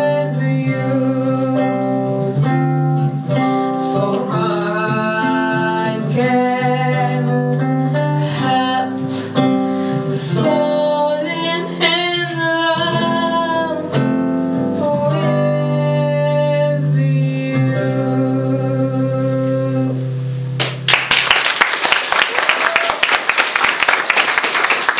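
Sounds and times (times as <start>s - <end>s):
woman singing: 0.0s - 2.3s, 3.8s - 20.1s
guitar: 0.0s - 21.3s
applause: 20.6s - 24.9s.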